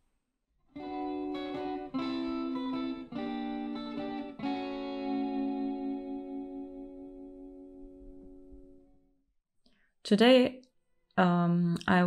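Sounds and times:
guitar chords strummed: 0.8s - 9.0s.

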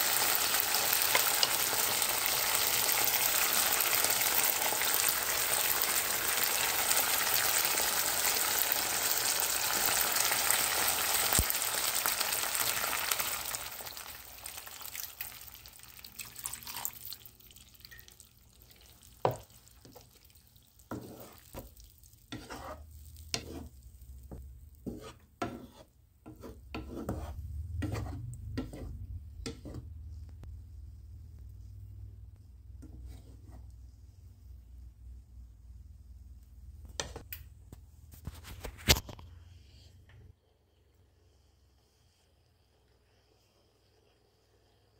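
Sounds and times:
food sizzling in a frying pan: 0.0s - 25.1s
stirring scrapes and taps in pan: 1.0s - 2.0s, 17.8s - 30.5s, 31.4s - 34.9s, 36.4s - 40.3s.

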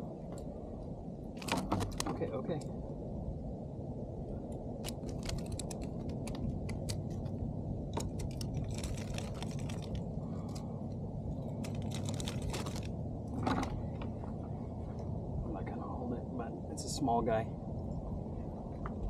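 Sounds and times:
steady low rumble: 0.0s - 19.0s.

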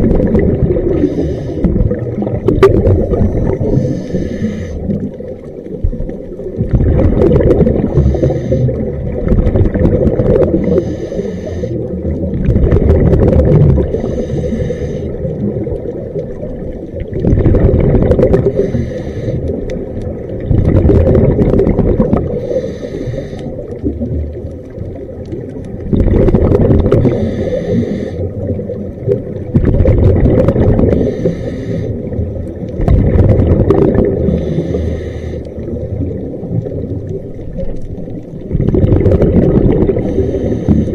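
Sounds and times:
exhaled bubbles rumbling: 0.0s - 40.9s
regulator hissing inhale: 0.9s - 1.9s, 3.0s - 5.0s, 7.8s - 9.0s, 10.6s - 11.9s, 13.9s - 15.4s, 18.5s - 19.6s, 22.3s - 23.8s, 27.1s - 28.4s, 30.9s - 32.2s, 34.3s - 36.0s, 40.0s - 40.9s.

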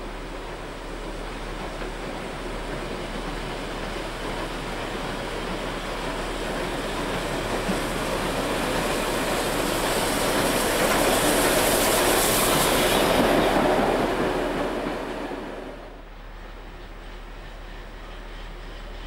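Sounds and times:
steam train passing: 0.0s - 19.0s.

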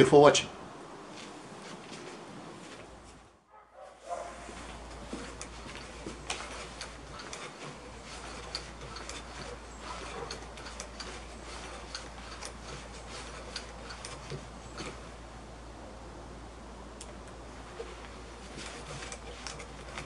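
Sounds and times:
propeller flipping clicks: 4.6s - 15.2s, 16.9s - 20.0s.

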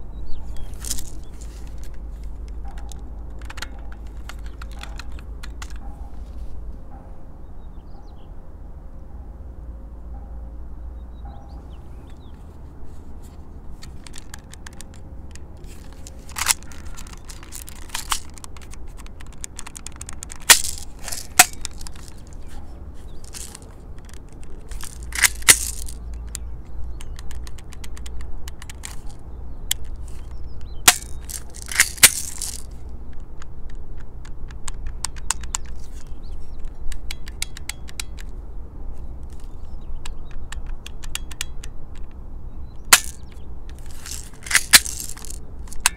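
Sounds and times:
pistol slide racking: 0.5s - 6.2s, 13.3s - 32.8s, 33.4s - 38.3s, 42.8s - 45.9s
toy pistol mechanical clicks: 0.6s - 5.9s, 13.8s - 38.3s, 39.2s - 42.2s, 42.8s - 45.9s.

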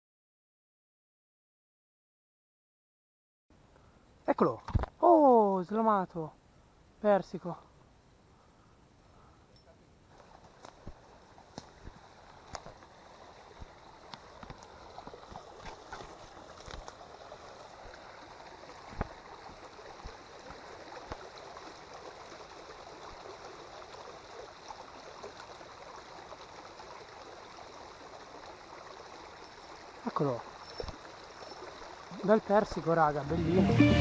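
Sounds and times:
flowing water rushing: 10.1s - 34.0s.

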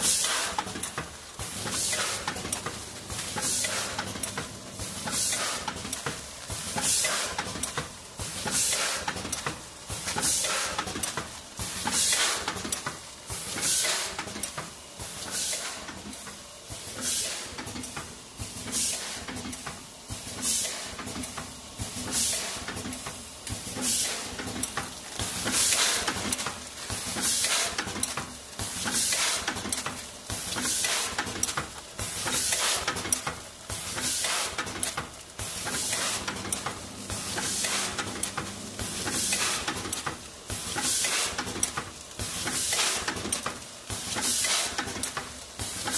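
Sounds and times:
bagging machine hissing: 0.0s - 45.9s
low machine hum: 35.8s - 40.8s.

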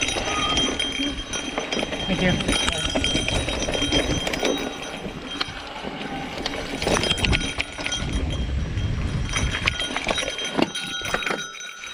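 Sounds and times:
bike rattling and clicking: 0.0s - 11.9s
tyres rumbling over dirt and stones: 0.0s - 11.9s.

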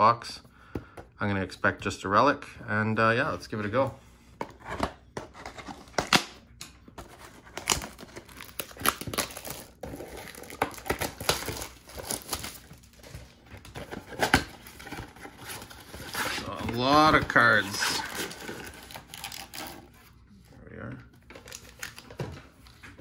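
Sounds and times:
packaging crinkling and tearing: 7.0s - 20.1s, 21.2s - 22.8s.

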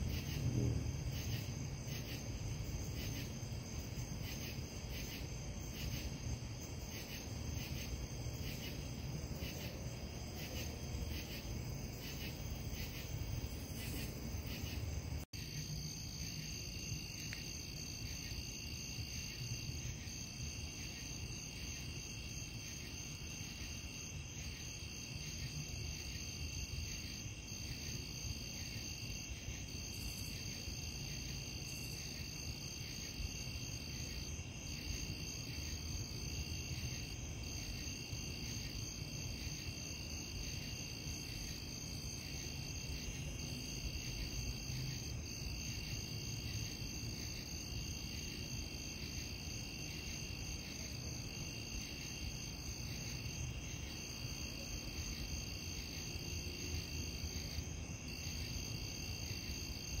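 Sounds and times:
low steady rumble: 0.0s - 2.8s
crickets chirping: 0.0s - 60.0s.

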